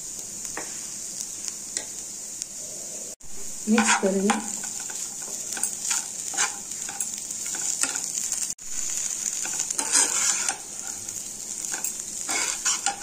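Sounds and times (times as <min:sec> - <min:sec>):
food sizzling in a frying pan: 0:00.0 - 0:13.0
spatula scraping a pan: 0:03.7 - 0:08.4, 0:09.0 - 0:13.0.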